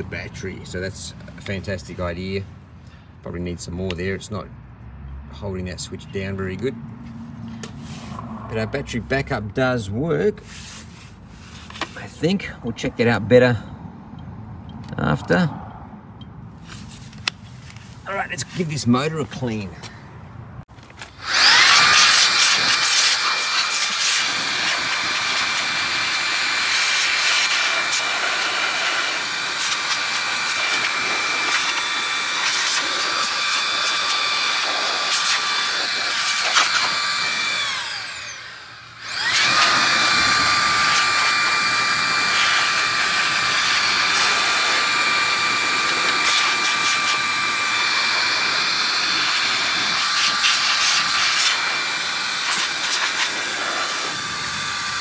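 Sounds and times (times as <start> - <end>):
electric blower whining: 20.8 - 55.0.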